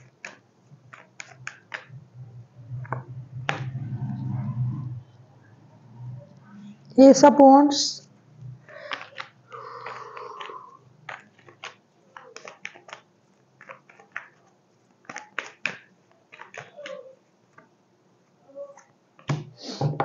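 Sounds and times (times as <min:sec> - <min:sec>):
cards being shuffled: 0:00.0 - 0:02.0, 0:08.6 - 0:17.7.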